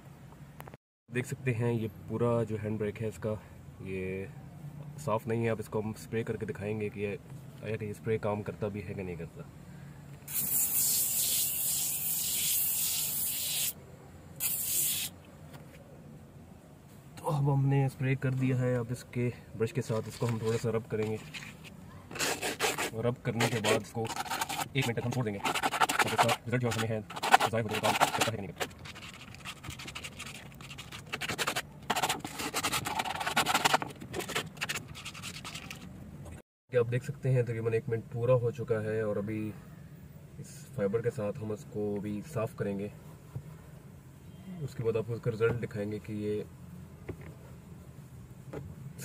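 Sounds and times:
aerosol can spraying: 10.3s - 13.8s, 14.4s - 15.2s
brush scrubbing: 19.9s - 35.9s.

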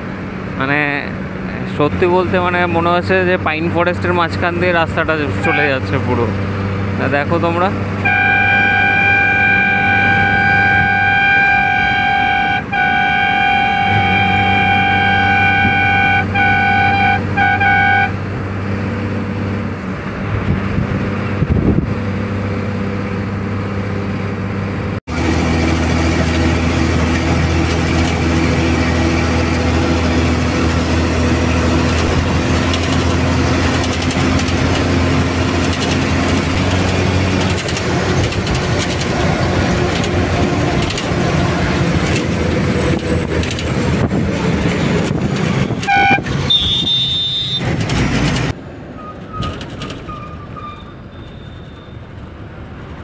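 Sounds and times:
bus engine droning: 0.0s - 53.0s
road noise: 0.0s - 53.0s
horn blasts: 5.3s - 6.1s, 8.0s - 18.3s, 45.5s - 47.8s.

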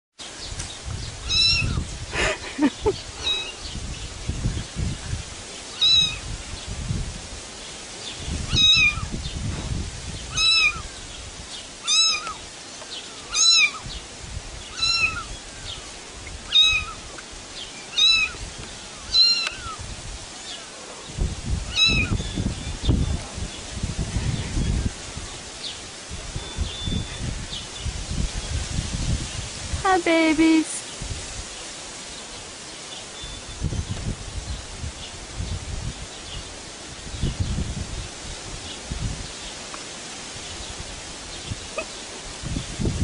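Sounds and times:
kitten mewing: 1.3s - 1.8s, 3.3s - 3.5s, 5.8s - 6.2s, 8.5s - 9.1s, 10.4s - 10.8s, 14.8s - 15.3s, 16.6s - 17.0s, 18.0s - 18.4s, 21.7s - 22.2s.

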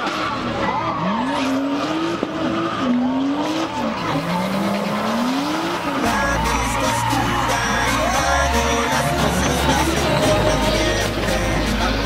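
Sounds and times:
car engine revving: 0.0s - 12.0s
tyres hissing and squealing: 3.8s - 12.0s.

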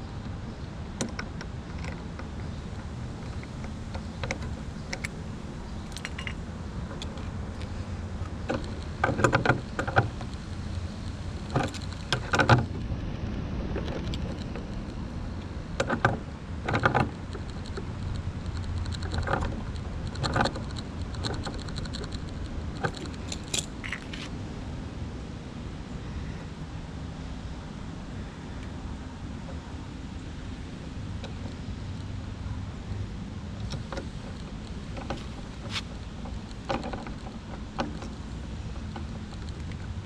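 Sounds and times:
metal tools clinking on engine: 5.7s - 6.4s.

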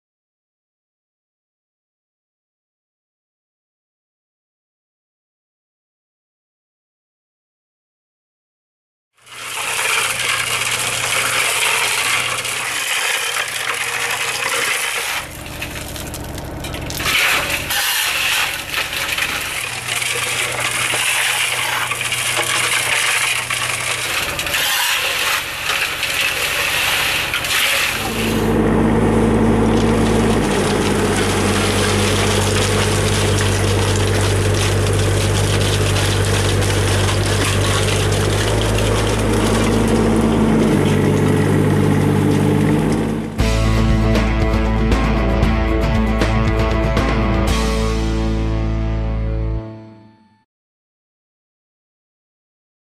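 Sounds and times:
material tumbling in mixer drum: 9.3s - 43.5s
low engine drone: 9.3s - 49.8s.

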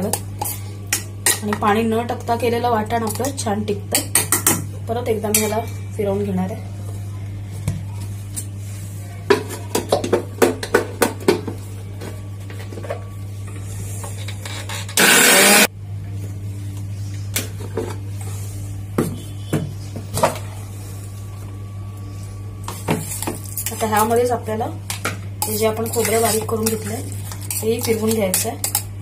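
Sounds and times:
mixer grinder running: 14.7s - 15.7s.

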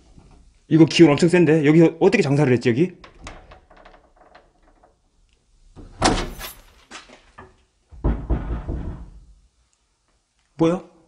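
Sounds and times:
door thudding against frame: 5.9s - 6.7s, 7.9s - 9.2s.

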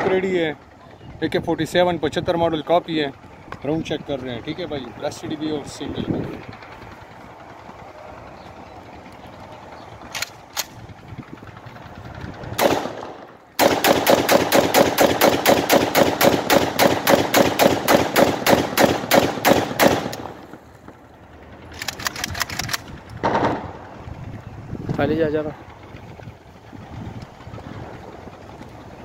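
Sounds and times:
rifle single shot: 12.6s - 20.6s, 23.2s - 23.8s
automatic rifle burst: 21.7s - 23.6s.

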